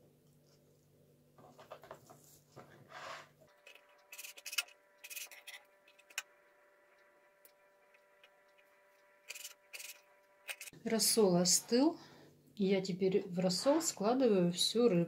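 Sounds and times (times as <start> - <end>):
knife scraping and cutting fish: 3.7 - 6.2, 9.3 - 10.7.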